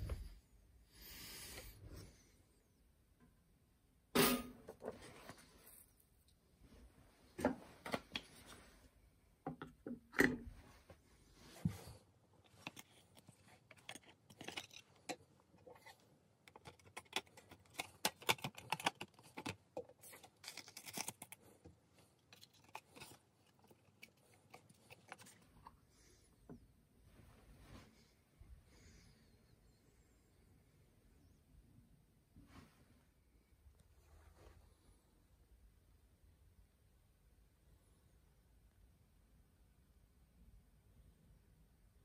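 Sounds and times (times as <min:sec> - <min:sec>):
light clicks taps and scrapes: 0:11.5 - 0:25.8.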